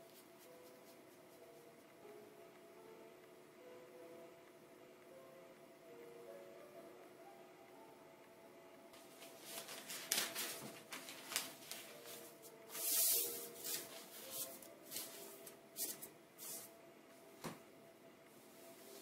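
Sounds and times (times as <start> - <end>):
paper sliding over felt: 9.2 - 16.7.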